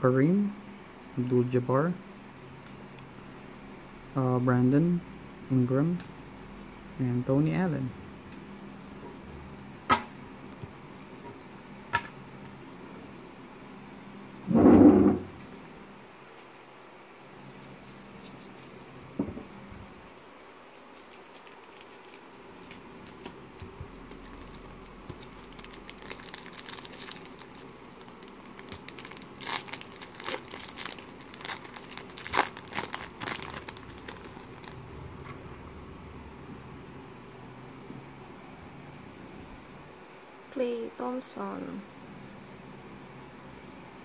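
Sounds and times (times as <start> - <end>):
foil wrapper crinkling: 20.7 - 35.3.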